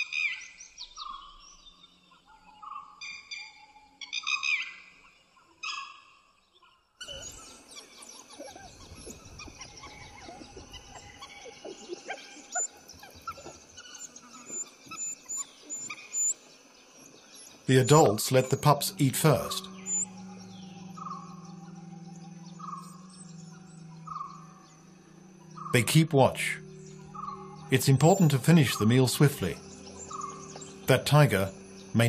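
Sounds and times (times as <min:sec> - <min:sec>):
birds chirping: 0:00.0 - 0:32.0
animal calls: 0:07.0 - 0:32.0.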